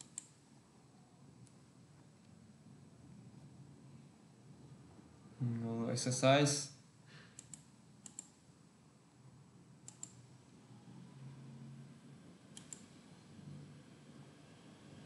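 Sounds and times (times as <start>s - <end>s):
computer mouse clicks: 0.0s - 0.4s, 7.4s - 8.4s, 9.8s - 10.2s, 12.5s - 13.0s.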